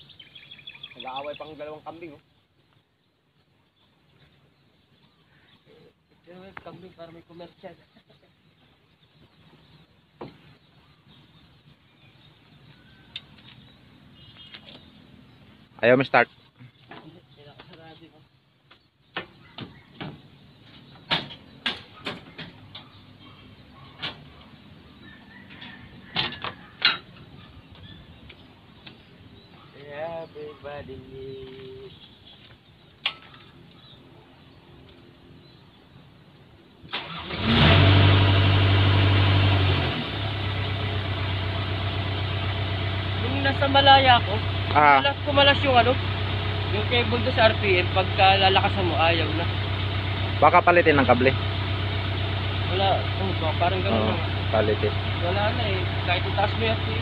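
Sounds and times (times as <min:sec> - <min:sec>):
faint bird calls: 0:00.0 - 0:15.6, 0:16.2 - 0:36.0
diesel engine starting and idling: 0:36.9 - 0:57.0.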